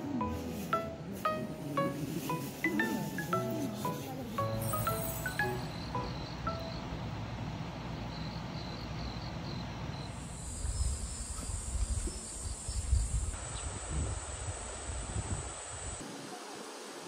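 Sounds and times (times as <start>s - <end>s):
insects chirping: 4.3s - 16.0s.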